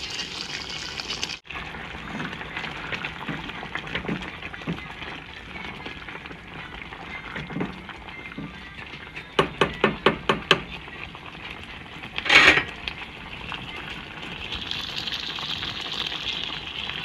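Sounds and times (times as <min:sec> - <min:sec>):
spatula stirring pan: 0:00.0 - 0:06.4
chowder simmering hiss: 0:00.0 - 0:17.0
spatula tapping on pan: 0:09.4 - 0:10.7.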